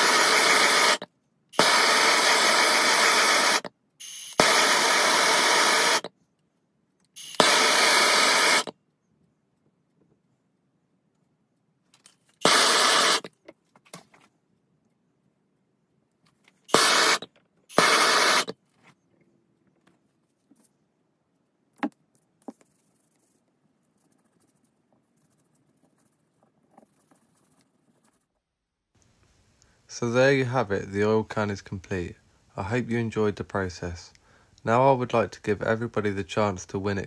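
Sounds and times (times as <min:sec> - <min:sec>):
loud bursts of hissing: 0:00.0 - 0:06.1, 0:07.2 - 0:08.7, 0:12.4 - 0:13.3, 0:16.7 - 0:18.5.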